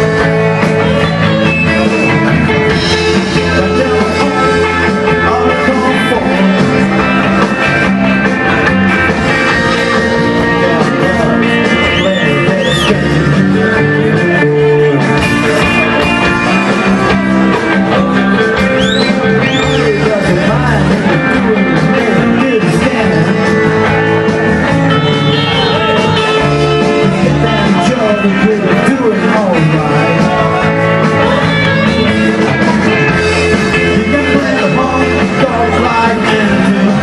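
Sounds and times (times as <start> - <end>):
blues band playing live: 0.0 - 37.0
drums: 0.0 - 37.0
electric guitar: 0.0 - 37.0
high bent guitar notes: 0.0 - 37.0
low bass line: 0.0 - 37.0.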